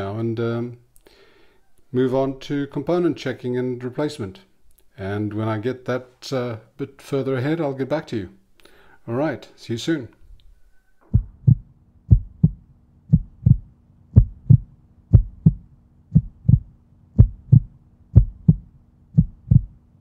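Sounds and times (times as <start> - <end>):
steady low tone: 10.4 - 20.0
heartbeat-like double thump: 11.0 - 19.8.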